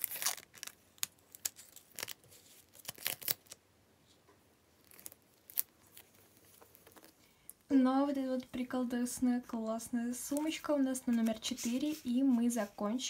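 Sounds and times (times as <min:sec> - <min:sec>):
paper sticker rustling: 0:11.1 - 0:12.8.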